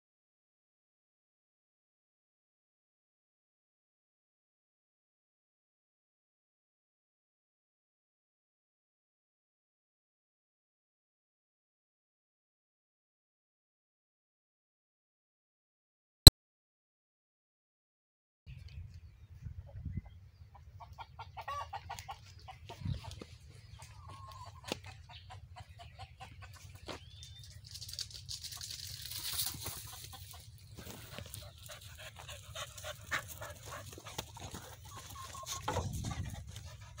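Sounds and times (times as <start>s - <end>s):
chickens clucking: 18.6s - 37.0s
rustling: 27.6s - 30.1s.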